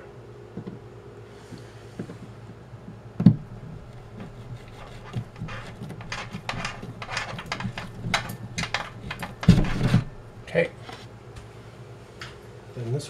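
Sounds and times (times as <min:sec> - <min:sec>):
screwdriver bit scraping drywall: 0:03.9 - 0:10.1.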